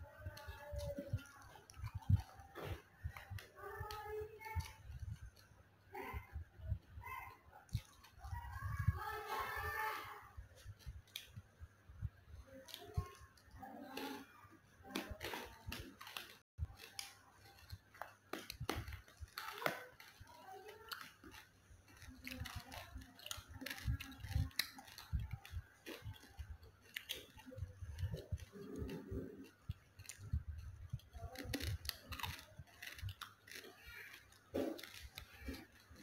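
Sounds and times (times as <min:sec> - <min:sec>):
close-up chewing noodles: 0:19.9 - 0:36.0.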